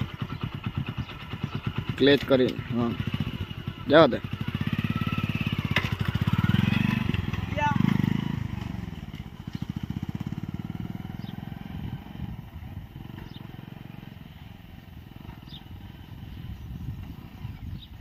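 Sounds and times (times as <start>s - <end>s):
bird chirping: 0.0s - 3.7s, 9.2s - 12.3s, 13.0s - 18.0s
motorcycle engine pulling away: 0.0s - 18.0s.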